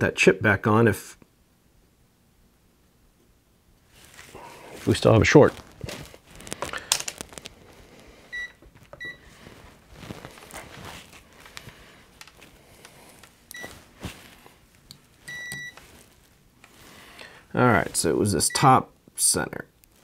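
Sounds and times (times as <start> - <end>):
multimeter continuity beeps: 8.3 - 9.3, 13.5 - 13.8, 15.3 - 15.9.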